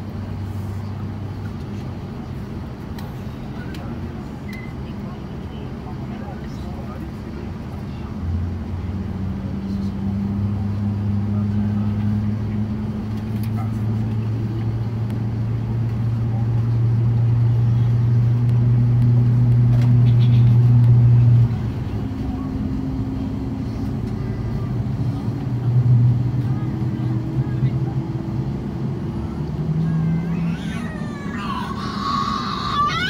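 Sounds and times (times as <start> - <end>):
aircraft cabin droning hum: 0.0 - 8.6, 11.4 - 33.0.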